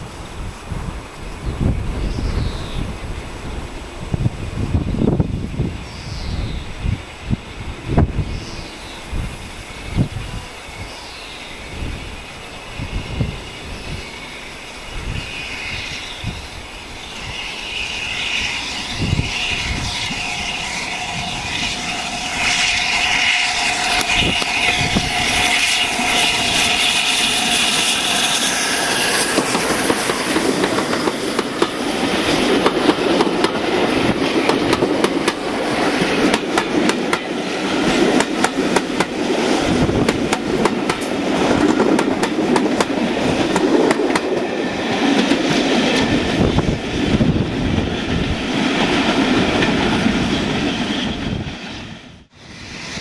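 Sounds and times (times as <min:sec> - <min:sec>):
steam locomotive running past: 0:00.0 - 0:53.0
train wheels clicking over rail joints: 0:17.0 - 0:50.2.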